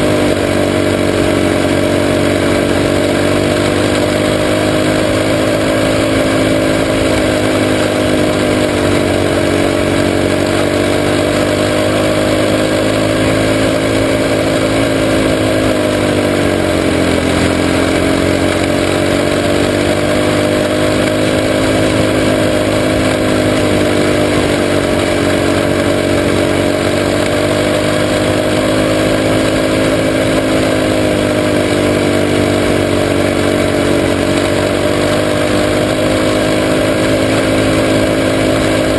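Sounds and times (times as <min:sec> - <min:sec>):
race car engine running hard: 0:00.0 - 0:38.9
steady rushing noise: 0:00.0 - 0:38.9.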